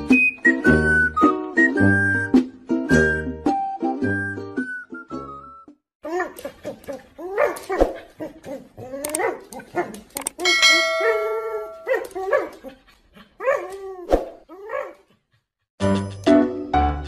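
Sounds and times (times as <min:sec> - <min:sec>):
dog yowling and grumbling: 0:06.1 - 0:15.0
bell-like chime: 0:10.4 - 0:12.0.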